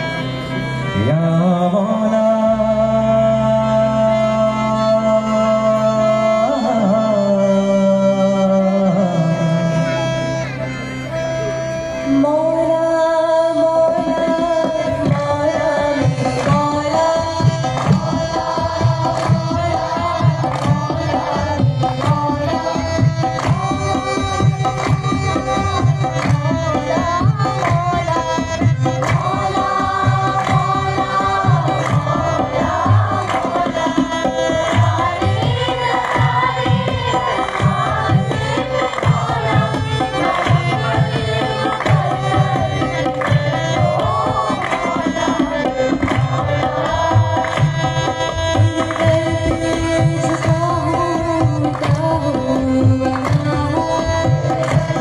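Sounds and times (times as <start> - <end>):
voices singing together: 12.1 - 55.0
hand drum beat: 29.0 - 48.1.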